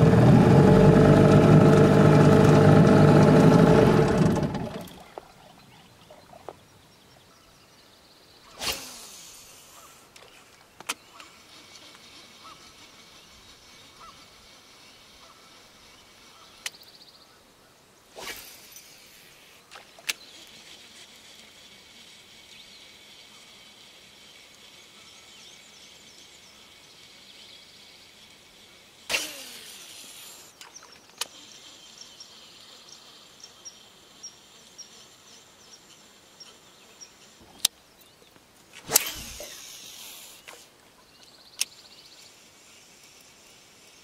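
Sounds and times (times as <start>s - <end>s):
fishing rod cast swish: 8.5s - 9.4s, 18.2s - 19.0s, 29.1s - 30.3s, 38.8s - 40.7s
small birds chirping: 10.6s - 18.0s, 29.6s - 38.5s, 39.2s - 43.4s
reel clicks: 41.6s - 42.3s.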